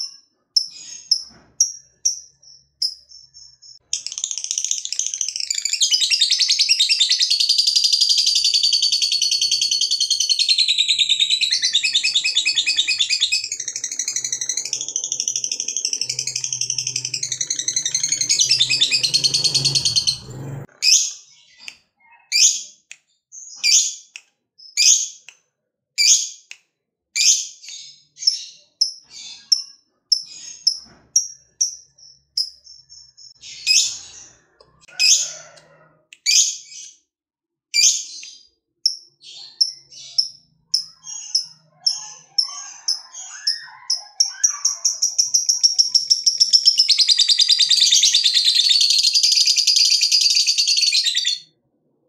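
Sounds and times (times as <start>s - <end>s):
lovebird chattering and chirping: 0.0s - 20.2s, 38.8s - 51.4s.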